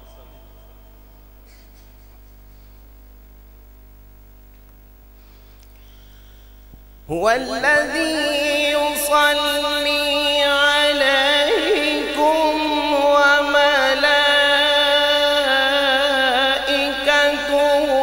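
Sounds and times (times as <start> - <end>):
man reciting melodically: 0.0 - 1.1, 7.0 - 18.0
faint electrical hum: 0.0 - 18.0.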